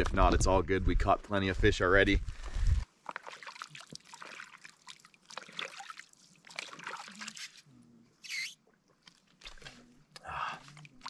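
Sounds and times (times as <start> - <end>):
water sloshing and trickling: 2.9 - 7.7, 8.3 - 11.0
water splash: 3.1 - 7.6.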